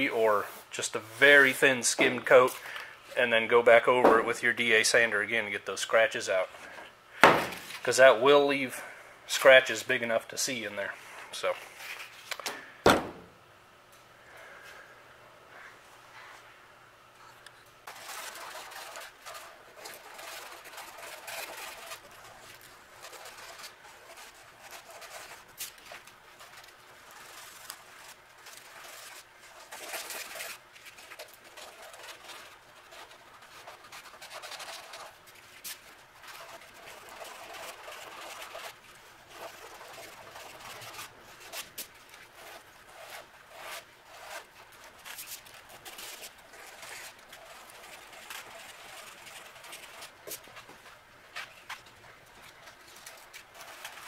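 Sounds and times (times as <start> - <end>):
hand sanding body filler: 17.9 - 50.4.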